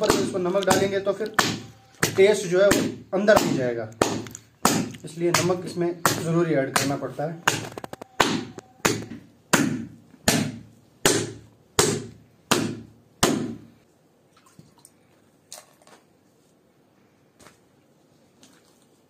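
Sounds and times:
mallet pounding meat on stone: 0.0 - 13.7.

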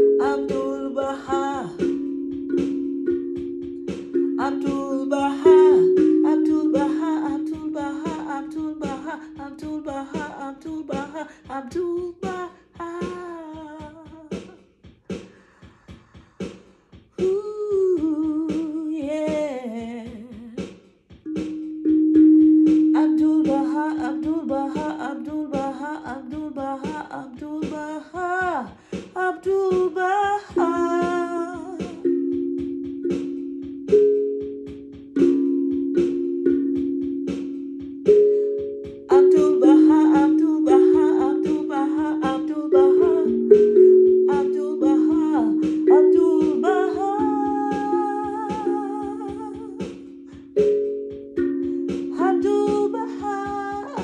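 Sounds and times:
woman singing without words: 0.0 - 2.0, 4.4 - 14.5, 17.2 - 20.7, 22.9 - 32.2, 39.1 - 50.6, 52.0 - 54.0
steel tongue drum struck: 0.0 - 14.4, 21.2 - 27.6, 29.5 - 54.0.

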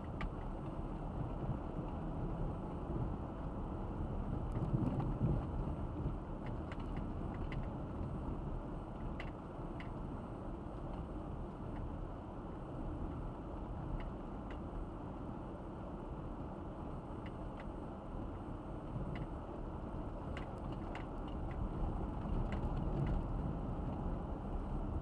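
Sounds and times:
car tyres and engine rumble: 0.0 - 25.0
light clicks and rattles: 20.2 - 24.0.

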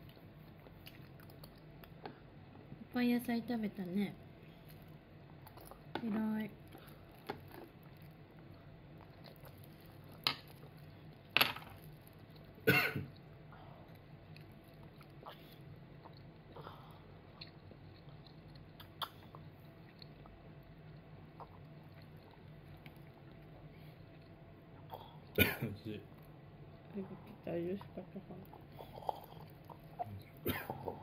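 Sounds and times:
child coughing: 12.7 - 13.1, 25.4 - 25.7, 30.4 - 31.0.

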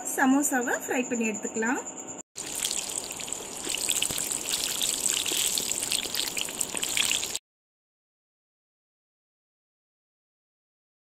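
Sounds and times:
food deep-frying in oil: 2.4 - 7.4.

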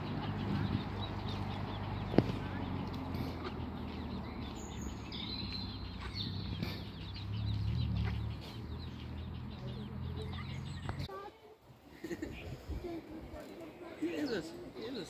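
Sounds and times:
ducklings peeping: 0.0 - 11.1.

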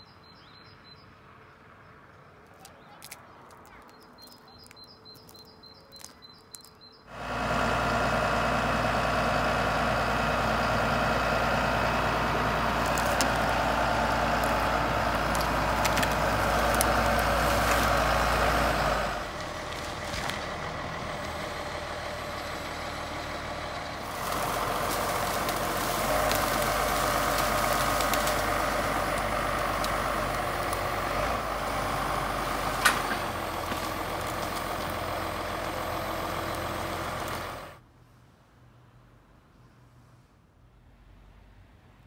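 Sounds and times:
bird chirping: 0.0 - 7.1
heavy engine running: 7.1 - 37.8.

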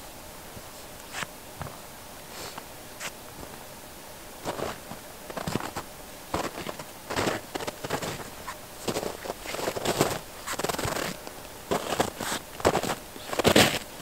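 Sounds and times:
footsteps in snow: 4.4 - 14.0.

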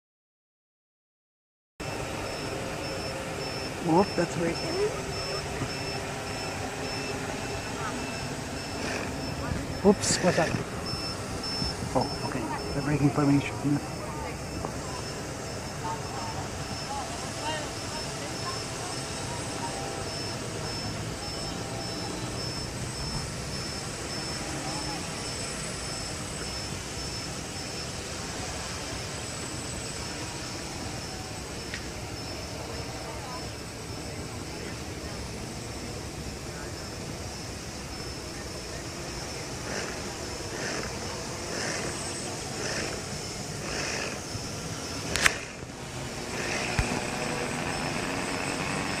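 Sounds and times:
drones whirring overhead: 1.8 - 49.0
thin high pulsing tone: 1.8 - 49.0.

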